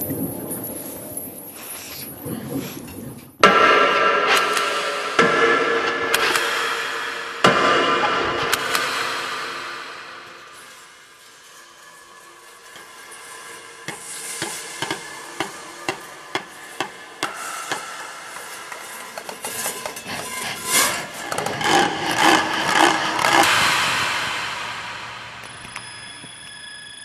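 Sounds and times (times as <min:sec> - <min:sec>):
clatter with rasping and scraping: 0:10.7 - 0:23.6.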